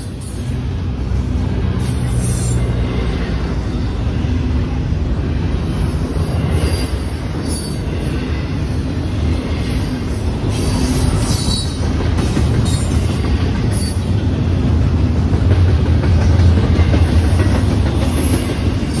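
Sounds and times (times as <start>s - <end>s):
freight train wheels rumbling: 0.0s - 19.0s
high wheel squeals: 1.8s - 3.2s, 5.9s - 8.6s, 9.7s - 11.8s.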